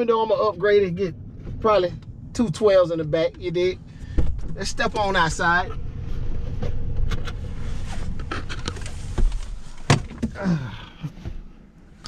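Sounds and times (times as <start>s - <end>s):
low rumble: 0.0s - 12.0s
clicks and knocks of movement: 6.4s - 10.4s.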